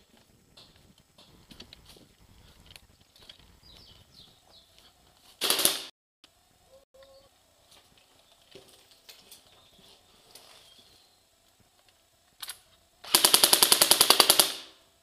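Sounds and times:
airsoft gun full-auto burst: 5.4s - 5.9s, 13.0s - 14.8s.

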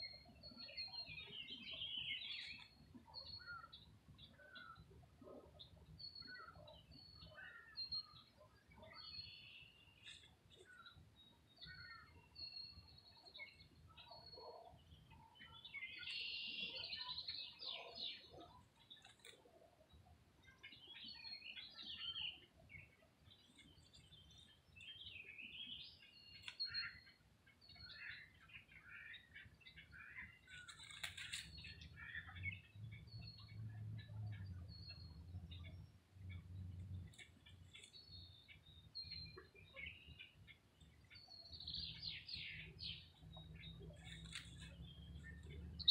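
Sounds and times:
songbirds chirping and singing: 0.0s - 45.9s.

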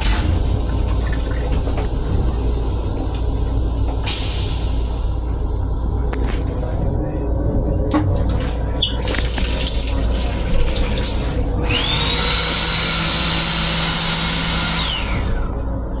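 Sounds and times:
steady low rumble: 0.0s - 16.0s
hand dryer whining: 11.6s - 16.0s.

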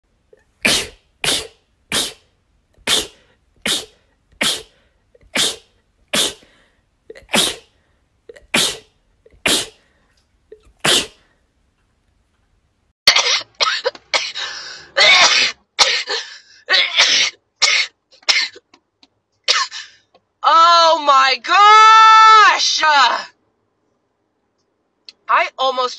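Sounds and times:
woman sneezing: 0.6s - 2.2s, 2.8s - 6.5s, 7.1s - 7.7s, 8.4s - 9.8s, 10.8s - 11.3s, 15.0s - 18.5s, 19.5s - 19.9s.

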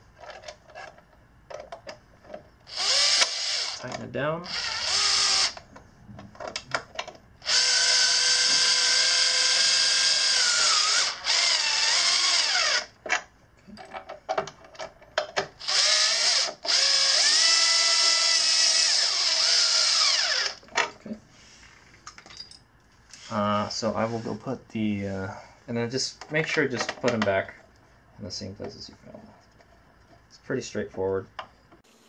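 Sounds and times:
cordless drill driving screws: 2.7s - 3.8s, 4.5s - 5.6s, 7.4s - 12.9s, 15.6s - 20.6s.

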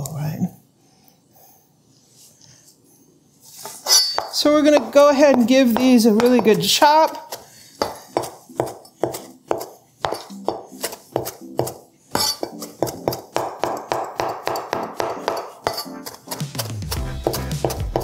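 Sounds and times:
faint background music: 3.4s - 18.0s
knife chopping on cutting board: 3.6s - 18.0s.

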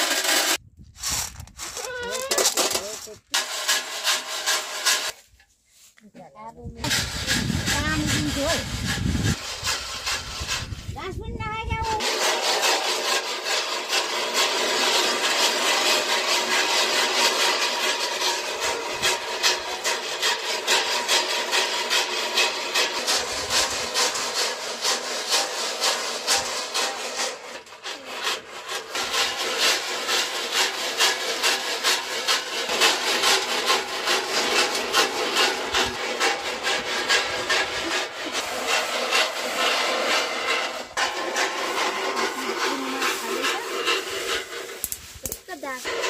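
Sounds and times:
corn kernels rattling in metal box: 0.0s - 5.2s, 6.9s - 10.9s, 11.9s - 46.0s.

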